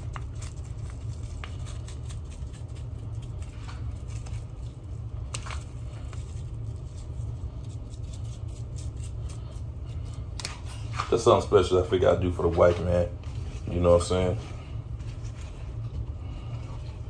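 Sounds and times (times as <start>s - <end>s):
powder pattering on meat: 0.0s - 10.6s
paper packet rustling: 0.0s - 17.0s
steady low hum: 0.0s - 17.0s.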